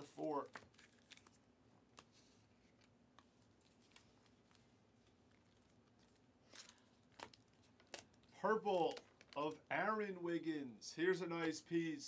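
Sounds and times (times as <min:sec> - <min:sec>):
trading cards rustling: 0:00.4 - 0:09.6.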